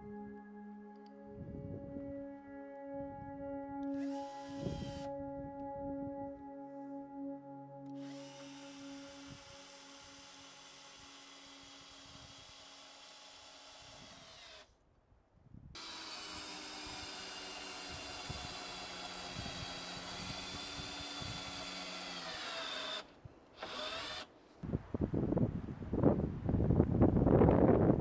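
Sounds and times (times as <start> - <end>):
wind rumble on microphone: 1.3 - 2.2, 24.6 - 28.0
cordless drill motor whine: 3.8 - 5.1, 7.9 - 14.7, 15.8 - 24.3.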